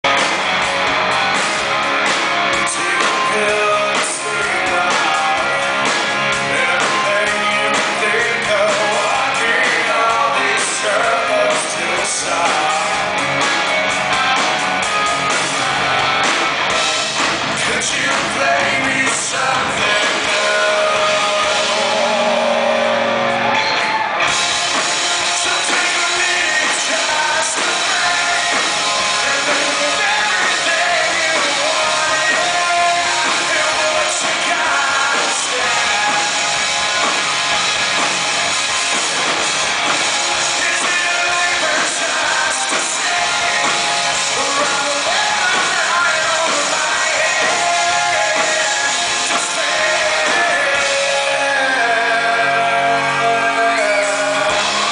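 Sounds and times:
bass guitar: 0:00.0 - 0:54.9
drums: 0:00.0 - 0:54.9
electric guitars: 0:00.0 - 0:54.9
man singing lead vocal: 0:02.5 - 0:13.2, 0:17.5 - 0:23.4, 0:24.8 - 0:37.2, 0:40.4 - 0:54.9.

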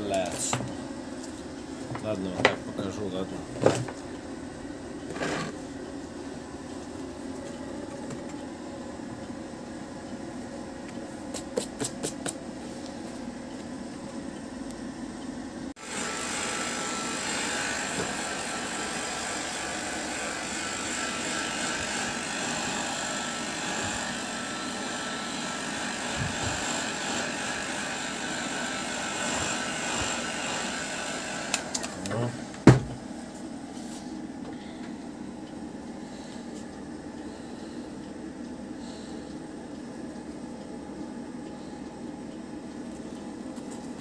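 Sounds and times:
electric motor running: 0:15.8 - 0:32.1.

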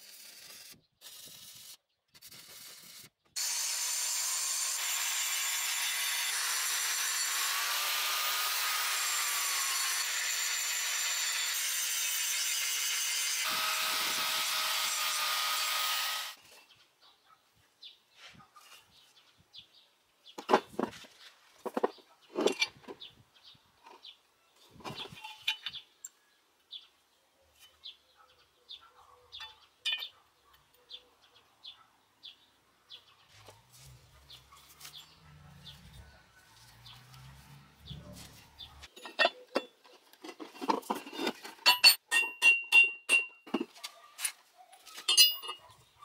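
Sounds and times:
metal parts clinking and scraping: 0:21.6 - 0:23.0, 0:24.8 - 0:25.8, 0:38.8 - 0:45.6.

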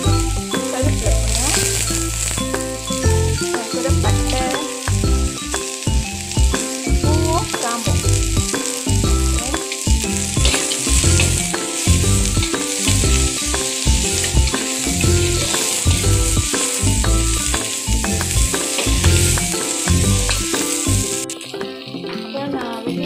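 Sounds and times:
background music: 0:00.0 - 0:23.0
food sizzling in hot oil: 0:00.0 - 0:23.0
metal spatula stirring in wok: 0:09.6 - 0:16.8.

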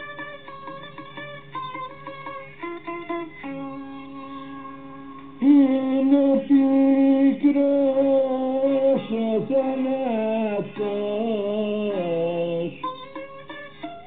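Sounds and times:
person singing long notes: 0:04.4 - 0:13.0.

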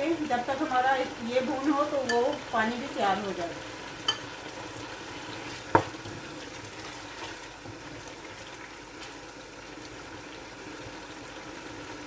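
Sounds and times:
meat sizzling in oil: 0:00.0 - 0:12.0
wooden spatula knocking on pot: 0:05.7 - 0:06.0.

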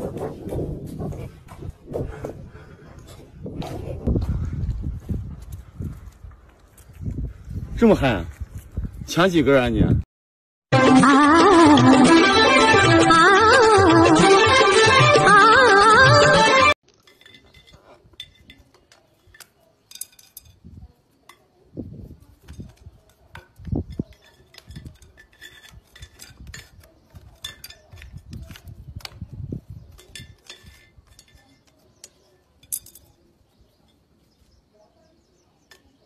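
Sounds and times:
glass jar clinks and scrapes: 0:16.9 - 0:20.6, 0:23.9 - 0:28.3, 0:29.9 - 0:31.7.

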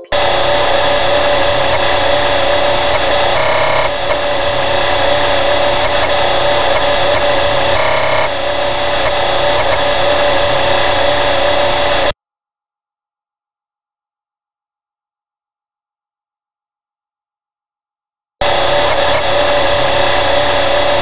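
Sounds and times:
floppy disk drive motor hum: 0:00.0 - 0:12.2, 0:18.4 - 0:21.0.

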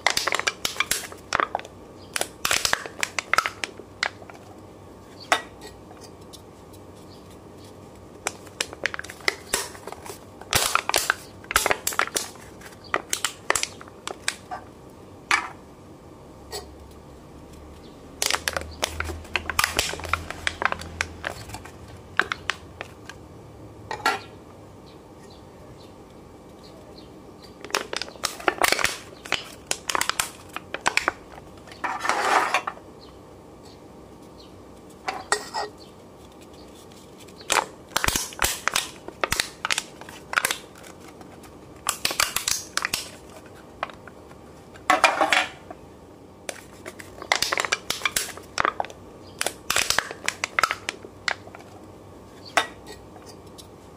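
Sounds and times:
aluminium cans crinkling and popping: 0:00.0 - 0:04.5, 0:08.2 - 0:14.7, 0:18.2 - 0:23.2, 0:27.5 - 0:32.8, 0:34.8 - 0:45.6, 0:46.4 - 0:53.8.

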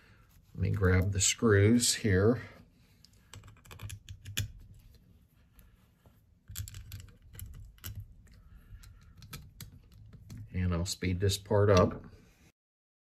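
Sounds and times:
small screws clicking on metal: 0:03.3 - 0:04.5.

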